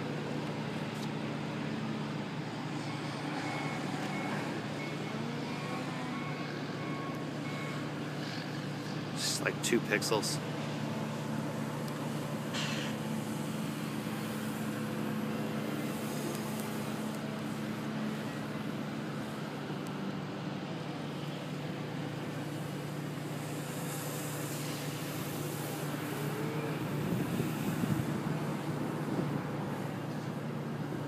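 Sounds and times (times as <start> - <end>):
city traffic hum: 0.0 - 31.0.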